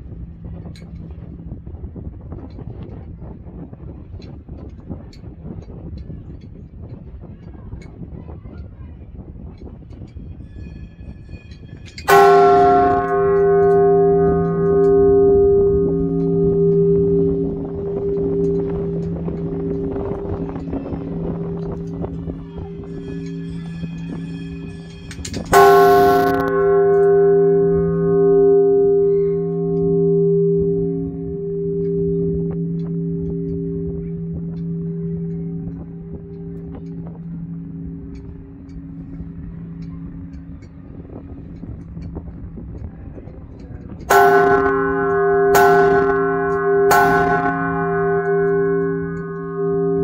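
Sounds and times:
large church bell ringing: 0.0 - 8.2, 11.0 - 50.0.

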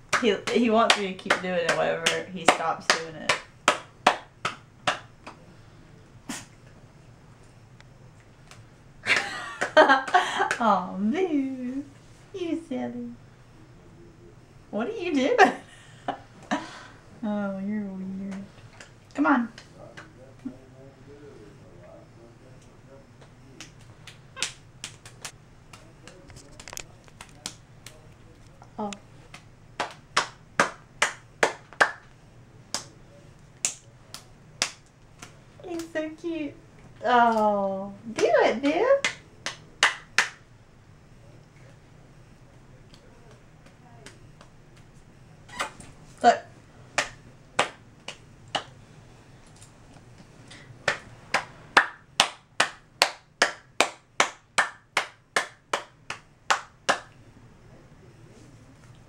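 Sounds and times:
hands clapping: 0.1 - 5.4, 8.4 - 10.7, 23.2 - 28.1, 29.3 - 33.0, 33.6 - 35.9, 38.2 - 40.4, 42.9 - 44.9, 47.0 - 48.8, 50.5 - 57.2.

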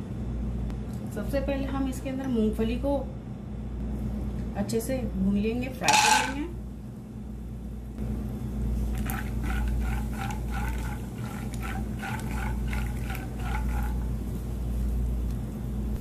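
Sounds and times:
spatula stirring strokes: 8.7 - 15.2.

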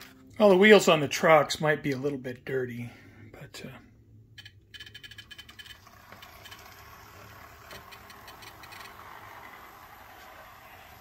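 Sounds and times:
model locomotive motor whirring: 5.6 - 11.0.

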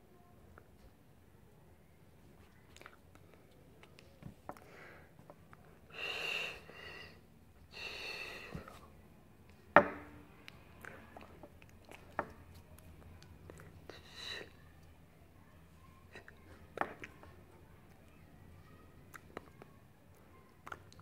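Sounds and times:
breathy puffs of breath: 5.9 - 8.8.

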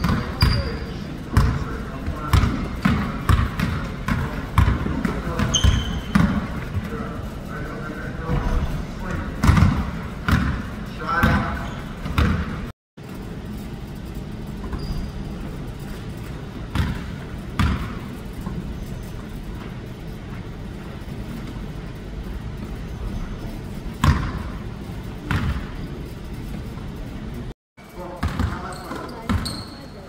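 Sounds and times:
basketball bouncing on hardwood floor: 0.0 - 0.7, 2.3 - 6.7, 9.4 - 11.4, 12.0 - 12.6, 16.7 - 18.0, 24.0 - 24.5, 25.2 - 25.7.

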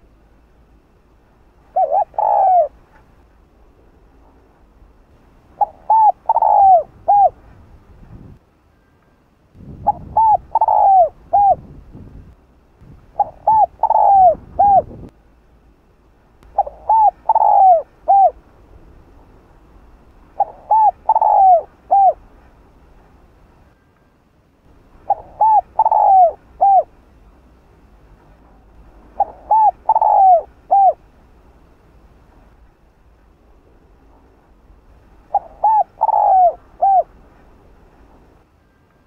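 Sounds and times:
dove cooing: 1.6 - 3.0, 5.6 - 7.5, 9.8 - 11.8, 13.1 - 15.1, 16.5 - 18.4, 20.4 - 22.2, 25.0 - 27.0, 29.1 - 31.0, 35.3 - 37.2.

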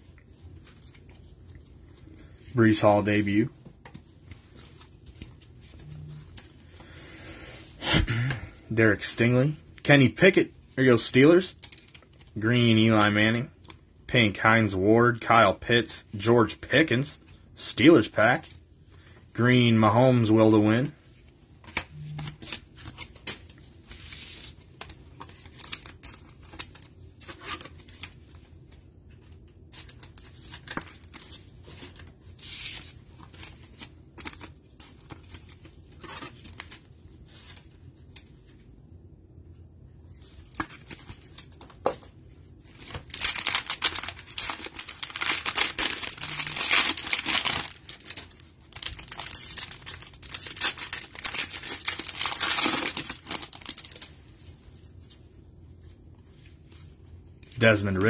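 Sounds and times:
cards and plastic sleeves rustling: 0.0 - 7.0, 7.6 - 58.0
cellophane wrapper tearing and crinkling: 42.7 - 54.2.

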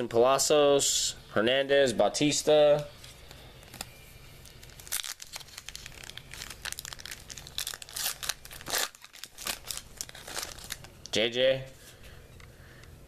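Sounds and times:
plastic wrapper tearing and crinkling: 3.6 - 11.1.

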